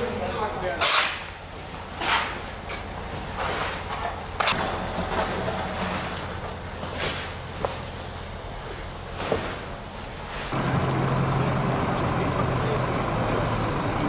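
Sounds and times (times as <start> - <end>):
shovel scraping sand: 0.8 - 1.3, 2.0 - 2.5.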